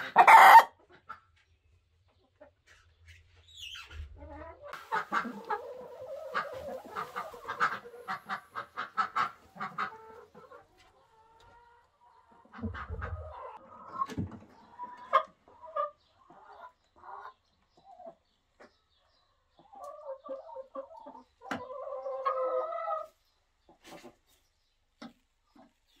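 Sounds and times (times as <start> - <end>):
chicken drawn-out call: 0.0 - 0.8, 3.8 - 10.6
chickens clucking: 0.0 - 26.0.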